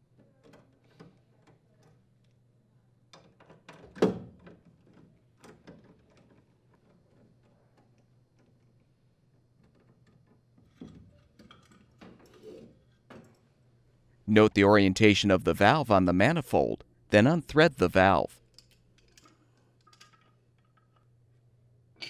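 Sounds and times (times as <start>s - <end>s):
metal parts clicking and knocking: 18.5s - 21.1s.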